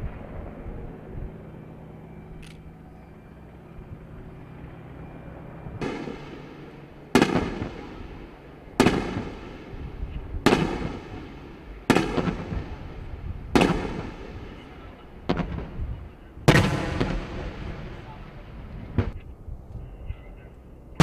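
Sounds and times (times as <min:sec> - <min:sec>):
helicopter drone: 0:00.0 - 0:21.0
explosive blasts: 0:05.8 - 0:19.2.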